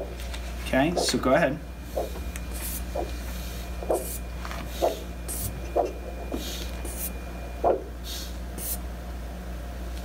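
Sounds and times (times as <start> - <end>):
steady hum from device: 0.0 - 10.0
doppler pulse whoosh: 1.8 - 3.2.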